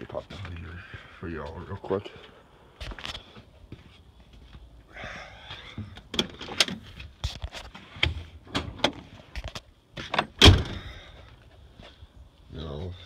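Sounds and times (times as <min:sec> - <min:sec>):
heavy door thump: 0:10.4 - 0:10.9.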